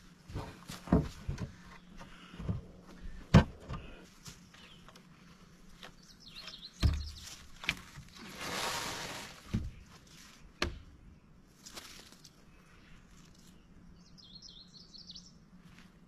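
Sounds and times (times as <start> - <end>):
dull wooden knocks: 0.3 - 4.0
wood scraping against wood: 6.8 - 10.4.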